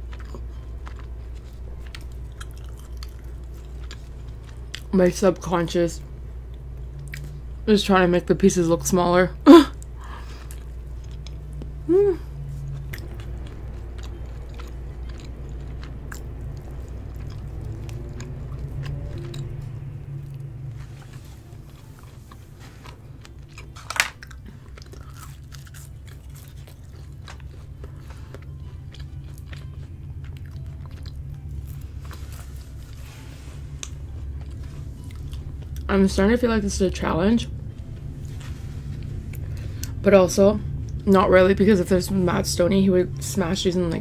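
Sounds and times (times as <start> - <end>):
close chewing mouth sounds: 0.0 - 4.9, 9.8 - 11.8, 12.4 - 35.9.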